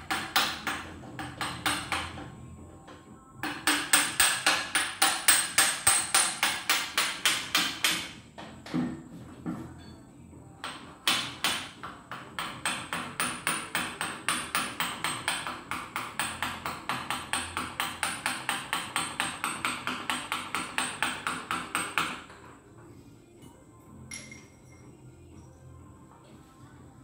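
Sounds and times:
small hammer tapping on metal: 3.4s - 8.1s, 10.6s - 22.4s.

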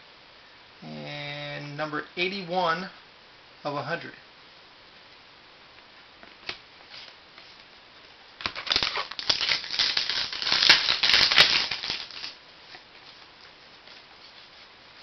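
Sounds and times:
plastic wrapping crinkling: 8.4s - 15.0s.

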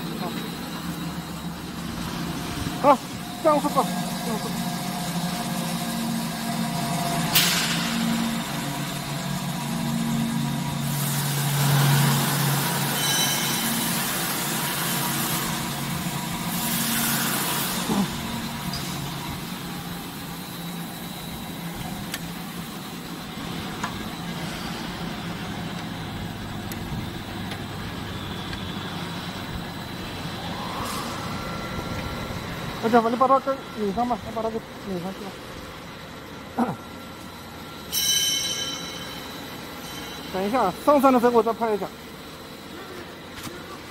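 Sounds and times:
mixer machinery humming: 0.0s - 43.9s.

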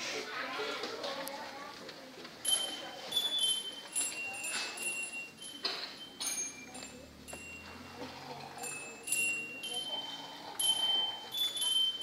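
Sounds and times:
toy instrument bell-like tones: 2.4s - 12.0s.

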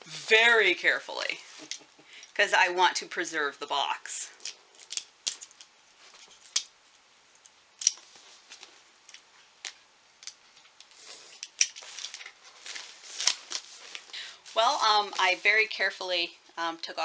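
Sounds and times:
plastic crinkling: 10.4s - 15.9s
plastic wrap snipping: 11.4s - 14.1s.

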